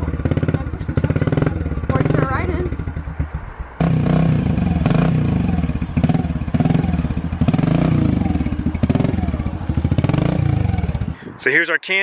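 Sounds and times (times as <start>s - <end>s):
dirt bike engine revving: 0.0s - 11.2s.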